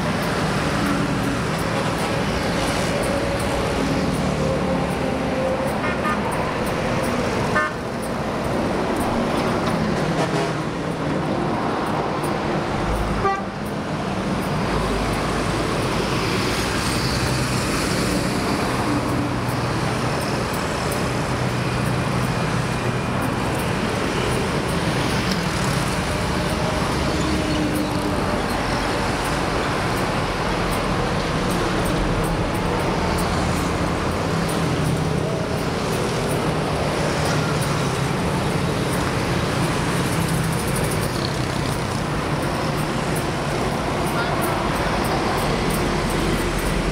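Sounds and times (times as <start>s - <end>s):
highway traffic passing: 0.0s - 46.9s
car horn tooting: 7.6s - 7.8s, 13.2s - 13.6s.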